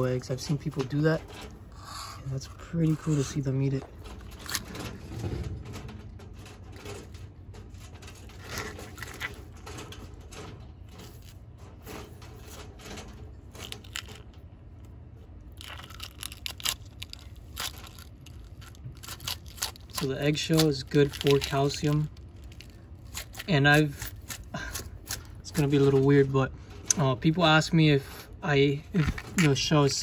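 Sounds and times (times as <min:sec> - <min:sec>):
eggshell crunching in jaws: 0:13.6 - 0:14.3, 0:15.4 - 0:25.5.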